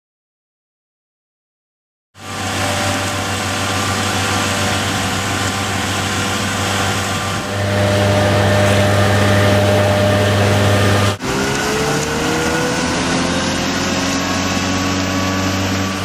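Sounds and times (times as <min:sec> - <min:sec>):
tractor engine running: 0:02.2 - 0:16.0.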